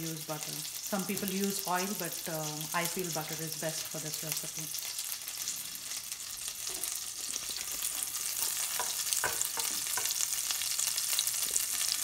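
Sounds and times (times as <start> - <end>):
butter sizzling in a pan: 0.0 - 12.0.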